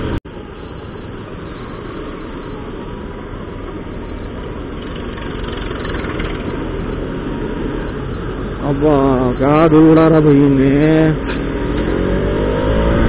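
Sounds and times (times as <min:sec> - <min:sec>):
road and wind noise: 0:00.0 - 0:13.0
motorcycle engine running: 0:04.4 - 0:07.1.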